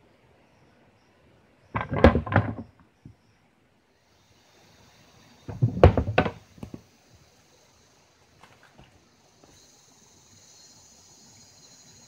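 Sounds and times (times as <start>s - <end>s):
insects buzzing: 0.0s - 12.0s
wooden sticks clattering: 1.8s - 2.6s
wooden trap door slamming: 1.8s - 2.7s, 5.5s - 6.4s.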